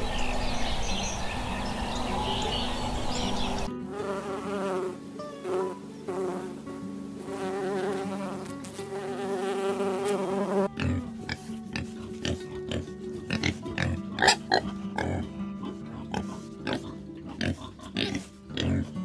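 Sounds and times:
soft background music: 0.6s - 19.0s
bumblebee buzzing: 2.2s - 11.2s
wild boar grunting and snorting: 10.7s - 19.0s.

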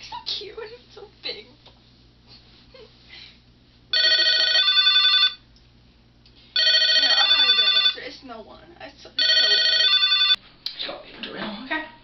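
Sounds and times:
telephone ringing: 3.9s - 5.4s, 6.6s - 8.1s, 9.2s - 10.4s.

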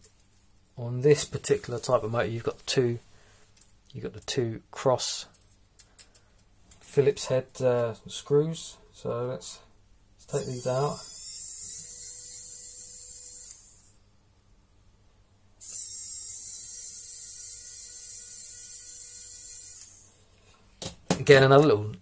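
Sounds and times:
electric screwdriver whirring: 10.4s - 13.9s, 15.6s - 20.1s.

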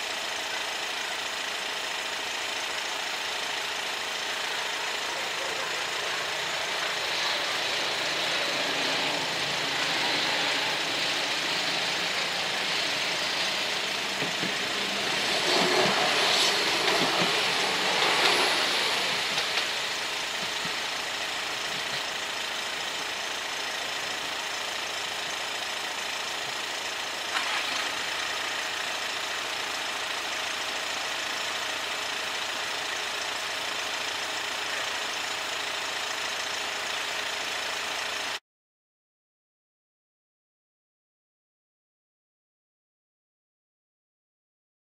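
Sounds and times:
car engine idling: 0.0s - 38.4s
passenger train passing: 4.5s - 22.0s.

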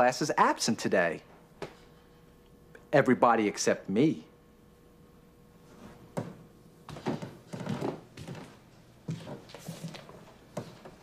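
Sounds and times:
footsteps: 5.6s - 11.0s.

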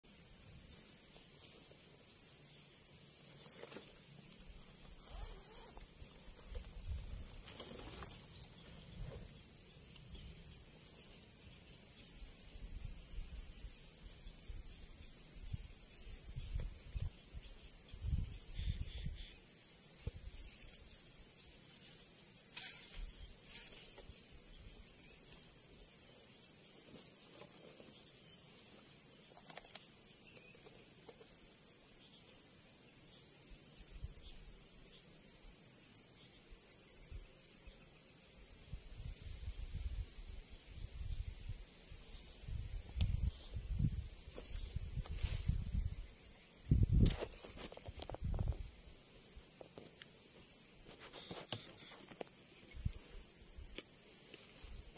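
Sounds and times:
high-pitched insect hiss: 0.0s - 54.9s
wind rumble on microphone: 15.4s - 19.2s, 38.7s - 41.6s, 42.4s - 48.7s.

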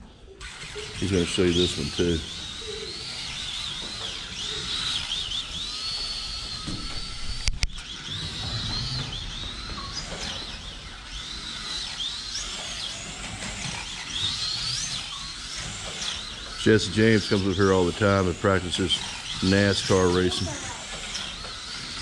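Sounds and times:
slot car electric motor whining: 0.0s - 22.0s.

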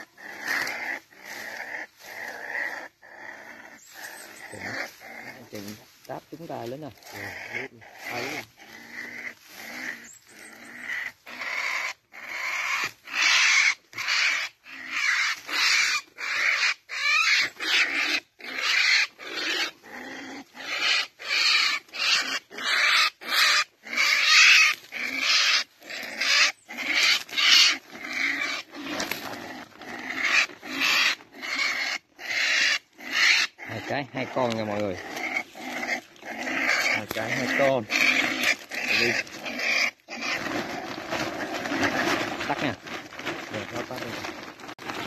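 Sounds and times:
small animal crying in distress: 7.0s - 40.4s.

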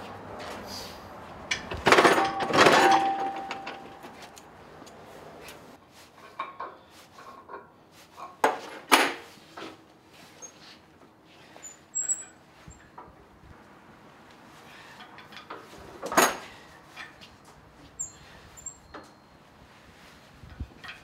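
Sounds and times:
metal tools clanking: 1.5s - 4.4s
loud metallic clangs: 1.6s - 4.2s.

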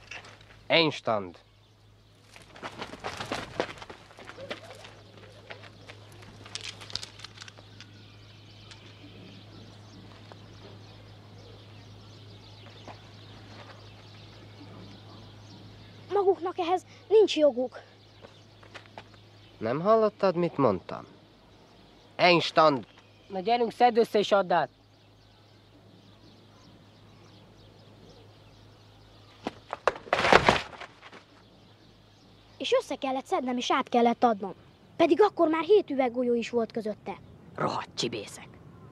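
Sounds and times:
steady low hum: 0.0s - 35.4s
sharp clicks and scuffs: 2.3s - 7.9s
faint bird chirps: 4.2s - 29.9s.

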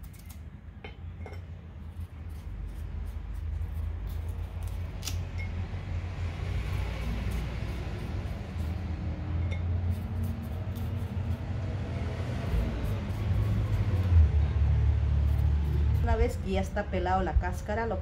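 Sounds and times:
knife scraping zucchini skin: 0.0s - 0.4s, 1.8s - 5.4s, 6.7s - 16.5s.

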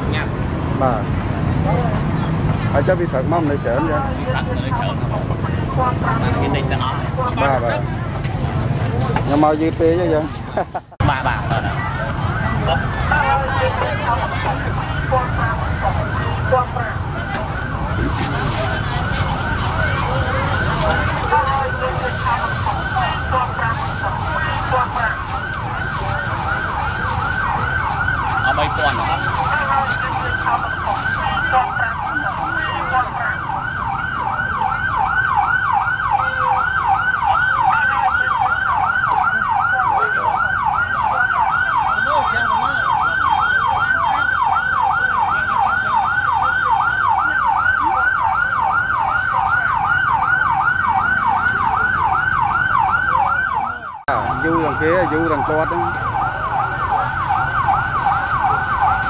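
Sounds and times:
electronic siren wail: 12.0s - 59.0s.

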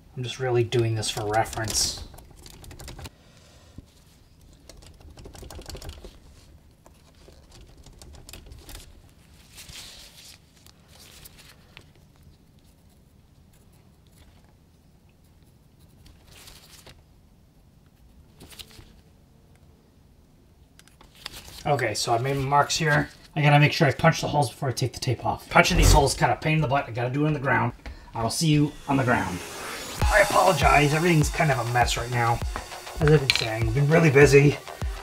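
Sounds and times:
soft rustles: 8.6s - 17.0s
pencil scratching: 25.7s - 26.1s.

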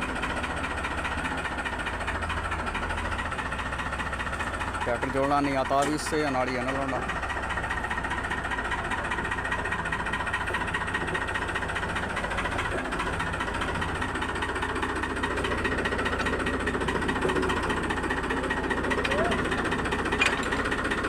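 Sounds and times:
tractor diesel engine running: 0.0s - 21.0s.

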